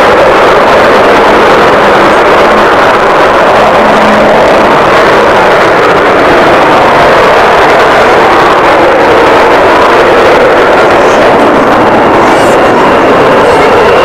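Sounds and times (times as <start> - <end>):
jet aircraft passing: 0.0 - 14.0.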